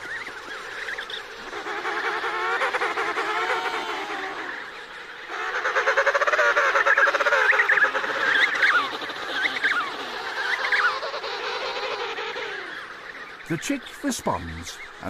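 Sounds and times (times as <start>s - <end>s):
high warbling penguin calls: 0.1s - 15.0s.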